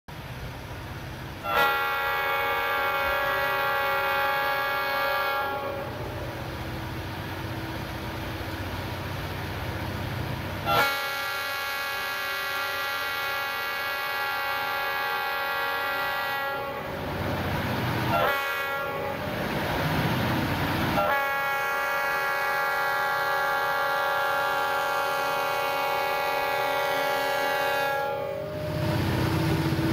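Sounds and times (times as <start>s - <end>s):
locomotive rumble: 0.1s - 29.9s
locomotive air horn blasts: 1.4s - 6.5s, 10.6s - 17.1s, 18.1s - 19.4s, 21.0s - 28.9s.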